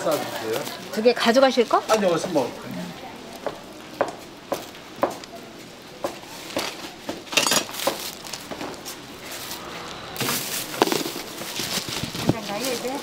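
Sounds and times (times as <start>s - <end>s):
dishes and utensils clattering: 6.6s - 8.2s.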